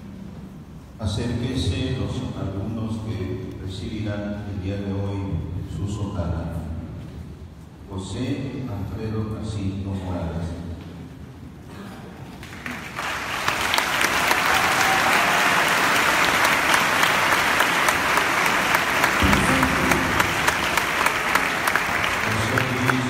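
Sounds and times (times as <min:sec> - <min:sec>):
congregation applauding: 0:12.4 - 0:23.0.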